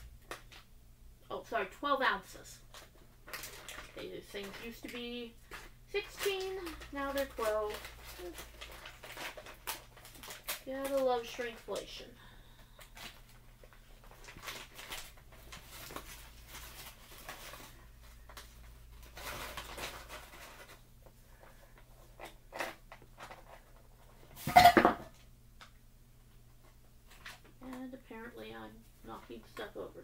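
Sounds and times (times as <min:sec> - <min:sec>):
plastic bag crinkling: 0:02.7 - 0:12.0, 0:12.7 - 0:23.8.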